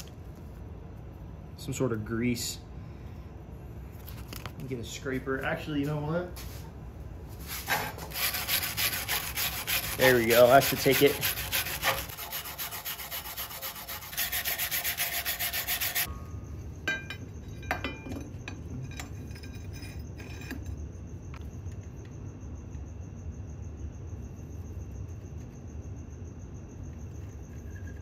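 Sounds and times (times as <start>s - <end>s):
steady low hum: 0.0s - 28.0s
wire brush scrubbing metal: 7.4s - 16.1s.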